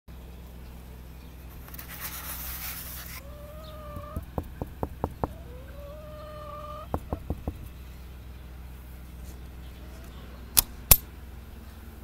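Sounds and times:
hen calling: 3.1s - 8.0s
hen clucking: 3.2s - 7.9s.

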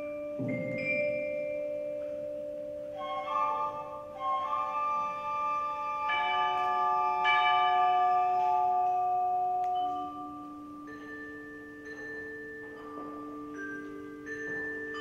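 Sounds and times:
orchestra bell-like struck notes: 0.0s - 4.6s, 6.0s - 15.0s.

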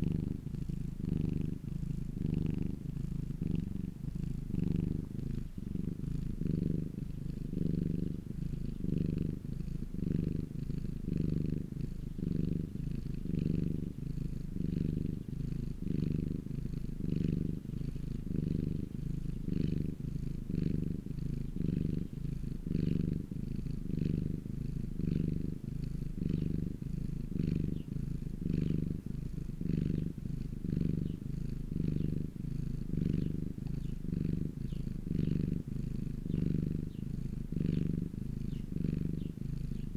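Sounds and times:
cat purring: 0.0s - 39.9s.

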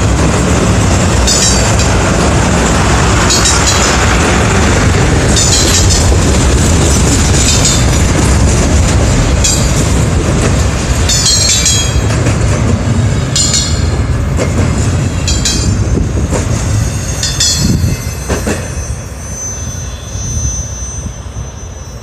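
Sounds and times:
freight cars rumbling: 0.0s - 22.0s
train wheels squealing: 16.6s - 22.0s.

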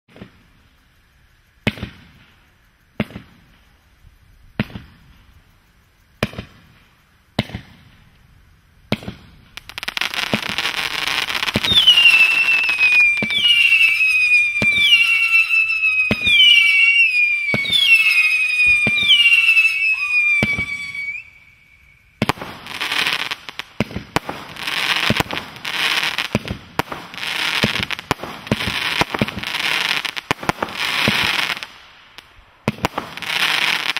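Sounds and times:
falling firework whistles: 0.1s - 8.2s, 8.8s - 33.9s
firework shots: 1.6s - 2.4s, 3.0s - 3.7s, 4.6s - 5.2s, 6.2s - 8.1s, 8.9s - 33.9s
firework crackling: 8.8s - 33.9s.

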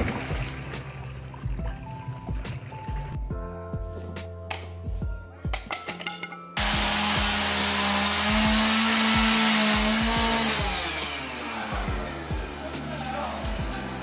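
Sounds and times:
chainsaw running at high revs: 6.6s - 14.0s.

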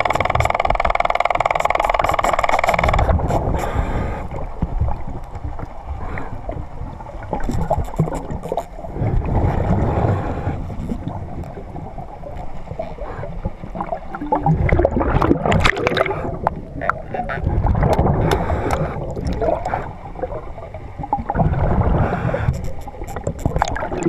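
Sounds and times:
clicks and crackles: 0.0s - 3.9s, 7.2s - 9.8s, 10.6s - 13.1s, 16.8s - 19.8s, 22.3s - 24.0s
underwater water rumbling and gurgling: 0.0s - 24.0s.

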